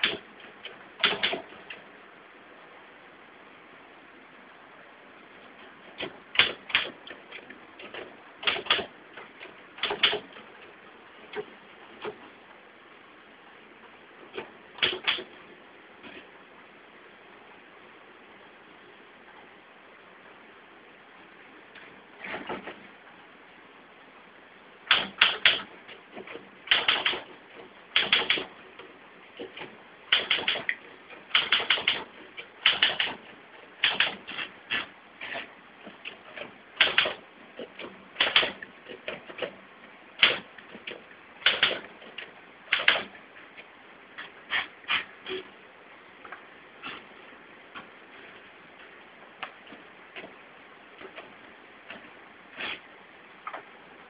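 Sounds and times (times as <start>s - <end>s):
typewriter keys striking: 1.0s - 1.5s, 7.8s - 8.9s, 9.8s - 10.3s, 14.8s - 15.2s, 24.9s - 25.7s, 26.7s - 27.3s, 28.0s - 28.5s, 30.1s - 30.7s, 31.3s - 33.2s, 33.8s - 34.8s, 36.8s - 37.2s, 37.8s - 39.5s, 41.4s - 41.8s, 42.7s - 43.1s
typewriter keys clacking: 31.3s - 32.0s.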